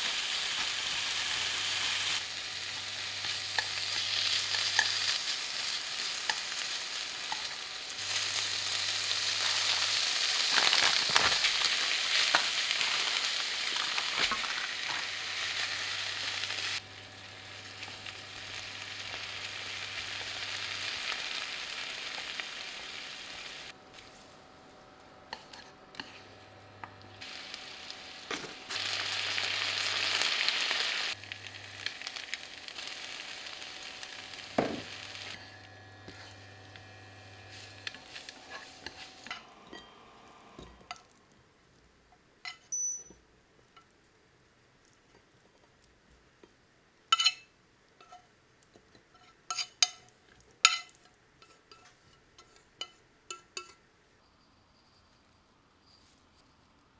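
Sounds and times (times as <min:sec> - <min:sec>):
noodles sizzling in a frying pan: 0:00.0 - 0:24.4, 0:25.2 - 0:41.2
chopsticks stirring in pan: 0:25.3 - 0:27.5, 0:37.4 - 0:39.9, 0:50.6 - 0:53.8.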